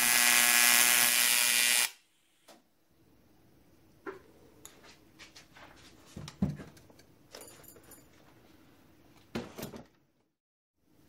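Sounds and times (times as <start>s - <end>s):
soft thumps and shuffling: 4.8s - 6.8s.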